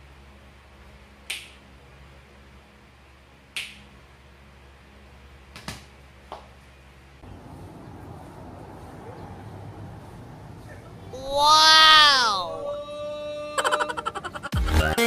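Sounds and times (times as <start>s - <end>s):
steady background noise: 0.0s - 14.6s
fingers snapping: 1.2s - 1.6s, 3.5s - 3.8s.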